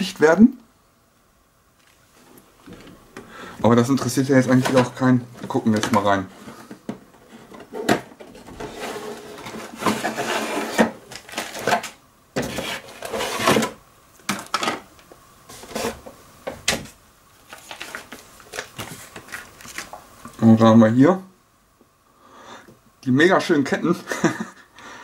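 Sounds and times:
plastic bags crinkling: 17.4 - 20.0.

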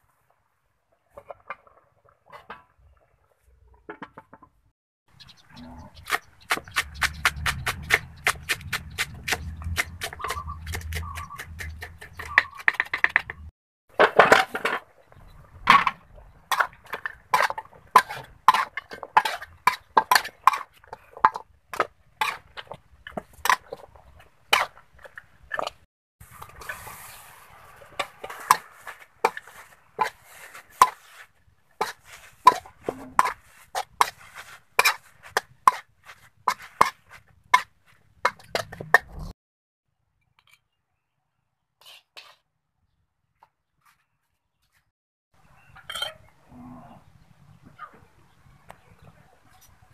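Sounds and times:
ladle scraping against wok: 24.5 - 38.9.

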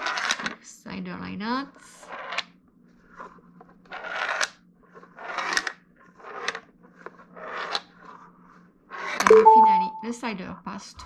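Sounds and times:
plastic pieces sliding and rattling: 3.9 - 8.2.

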